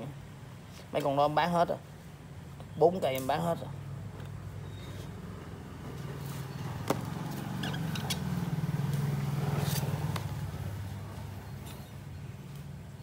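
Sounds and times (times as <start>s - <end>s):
vehicle engine rumble: 3.7s - 13.0s.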